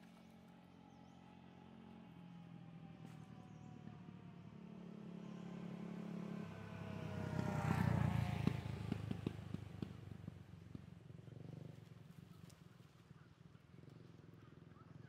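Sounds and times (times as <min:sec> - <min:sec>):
vehicle engine passing by: 0:00.5 - 0:12.5.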